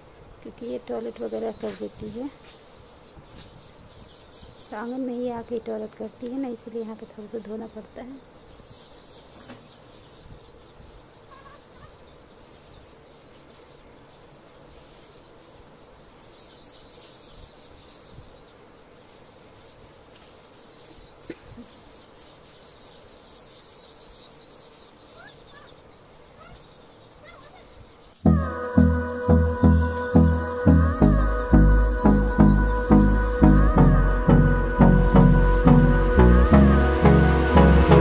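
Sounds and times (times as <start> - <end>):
insects chirring: 0.0 - 37.7
loud music with a regular beat: 28.3 - 38.0.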